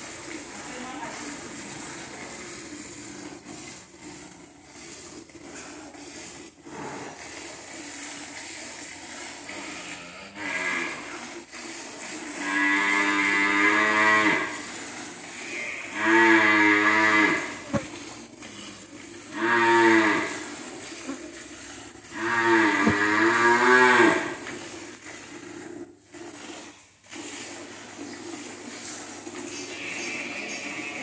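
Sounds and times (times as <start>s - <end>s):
water buffalo lowing: 19.3s - 24.5s.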